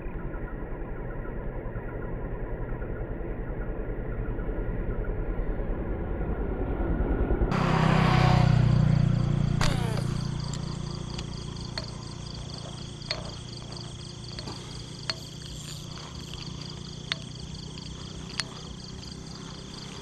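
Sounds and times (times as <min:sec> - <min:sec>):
low hum: 0:00.0 - 0:20.0
insects trilling: 0:07.5 - 0:20.0
small sharp clicks: 0:09.6 - 0:20.0.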